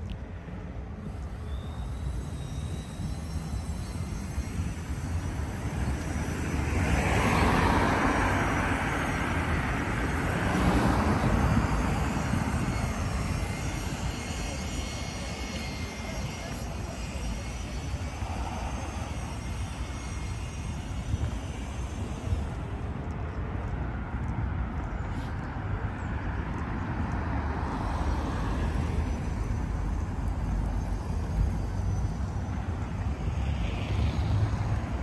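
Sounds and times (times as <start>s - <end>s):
low rumble of vehicles: 0.0s - 35.0s
faint high whine: 0.5s - 23.2s, 27.5s - 35.0s.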